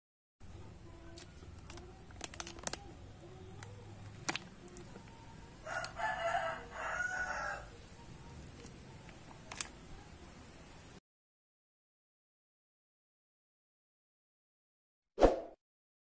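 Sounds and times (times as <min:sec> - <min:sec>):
rooster crowing: 0:05.5 - 0:07.8.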